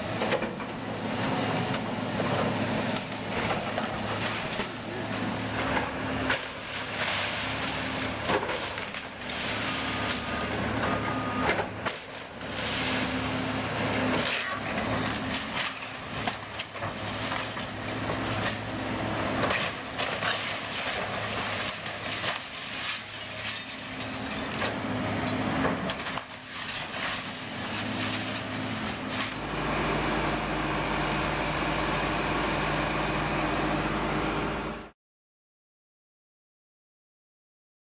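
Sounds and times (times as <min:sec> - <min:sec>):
excavator diesel engine running: 0:00.0 - 0:34.9.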